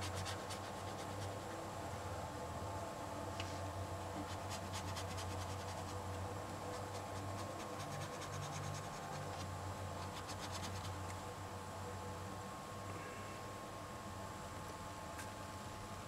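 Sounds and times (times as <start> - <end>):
steady low hum: 0.0 - 16.0
crayon scratching on paper: 4.2 - 6.0, 6.7 - 11.0.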